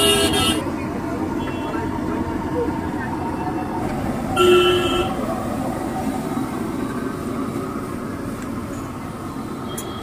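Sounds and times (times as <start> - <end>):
vehicle horn toot: 0.0 - 0.6, 4.4 - 5.2
street traffic noise: 0.0 - 10.0.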